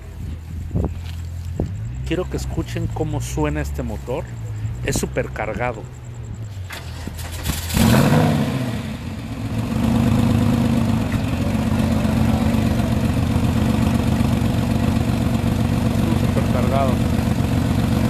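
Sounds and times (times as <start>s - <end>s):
car engine revving: 1.5s - 18.0s.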